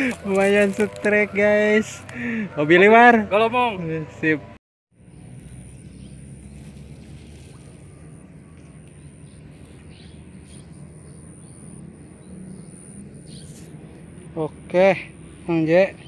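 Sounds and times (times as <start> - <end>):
steady low hum: 5.0 - 16.0.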